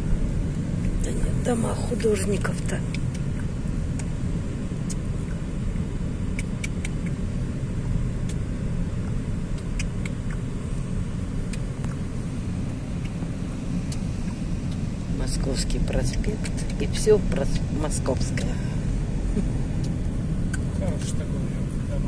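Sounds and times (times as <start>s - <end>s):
engine and tyres rumbling: 0.0s - 22.0s
faint sharp clicks: 9.5s - 10.4s.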